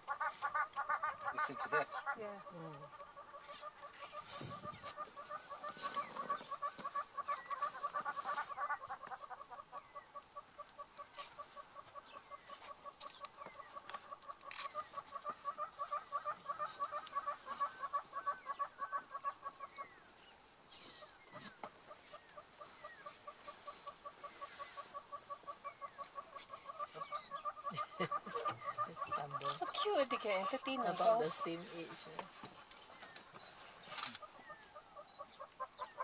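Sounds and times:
bird calling harsh notes: 0.0 - 20.0.

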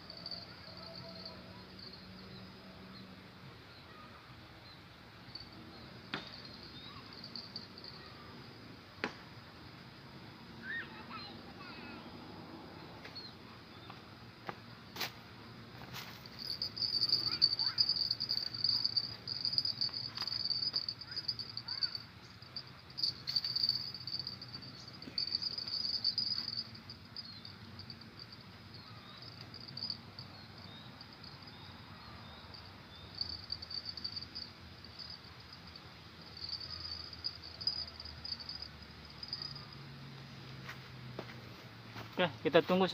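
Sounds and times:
insects trilling: 0.0 - 3.0, 5.2 - 8.7, 15.8 - 40.4.

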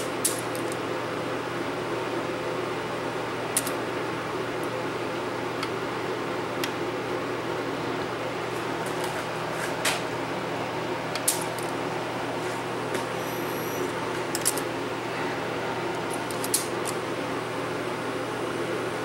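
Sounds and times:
mechanism clicks: 0.0 - 0.8, 3.5 - 3.8, 11.1 - 11.8, 13.9 - 14.7, 15.9 - 17.0
tape transport whirring: 5.5 - 18.9.

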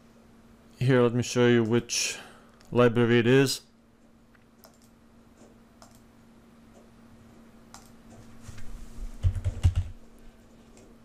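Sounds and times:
keyboard typing: 4.6 - 6.1, 7.7 - 8.0, 9.2 - 10.0.

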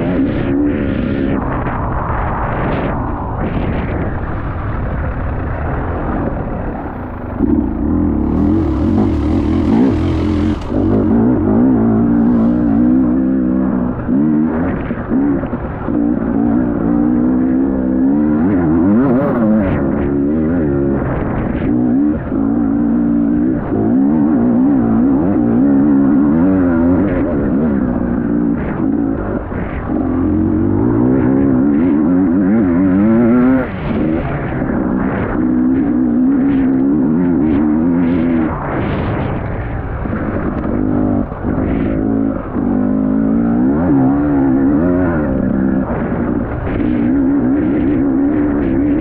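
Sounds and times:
motocross bike engine revving: 7.4 - 15.0.

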